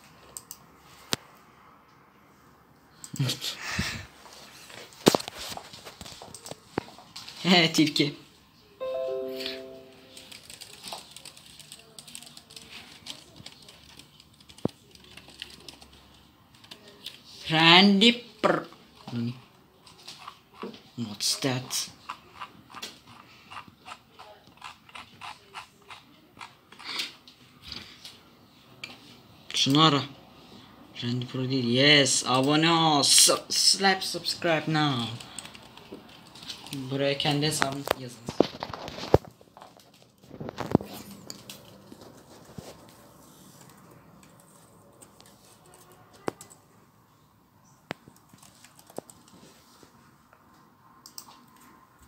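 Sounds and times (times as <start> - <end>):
laptop keyboard keys clicking: 10.1 - 17.2, 35.1 - 36.8, 47.9 - 49.4, 51.0 - 51.7.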